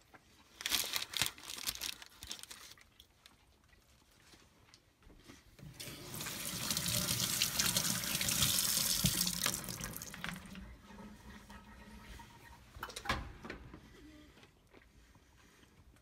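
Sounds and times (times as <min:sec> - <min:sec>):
faucet water splashing in sink: 0:05.7 - 0:13.0.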